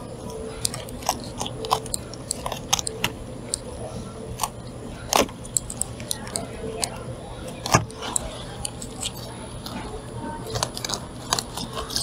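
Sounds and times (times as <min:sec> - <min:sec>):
knife crunching through fish bones: 0:10.5 - 0:12.0.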